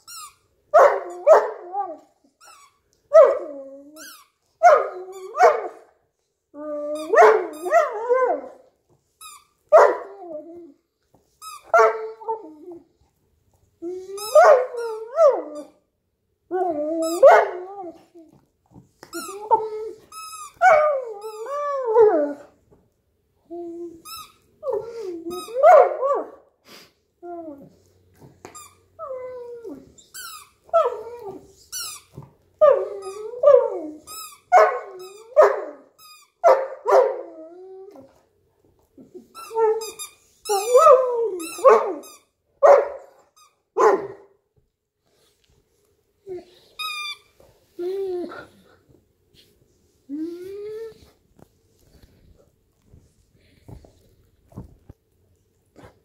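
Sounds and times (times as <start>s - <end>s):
rubber squeaky toy squeaking: 0.0s - 0.4s, 2.4s - 2.8s, 3.9s - 5.4s, 16.9s - 17.3s, 19.1s - 21.6s, 30.0s - 32.2s, 39.3s - 42.3s, 46.8s - 47.3s.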